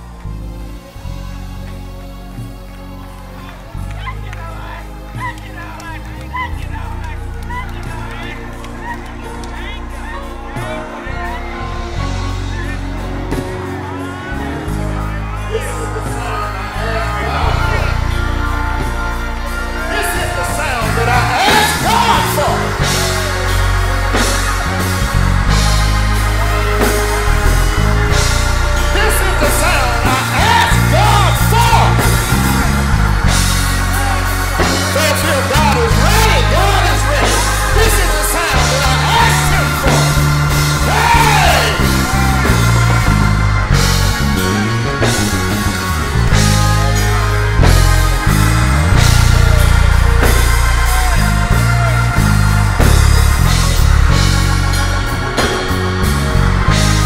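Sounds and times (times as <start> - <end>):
guitar: 0.0 - 57.0
heavy bass line: 0.0 - 57.0
drum kit hits: 20.0 - 57.0.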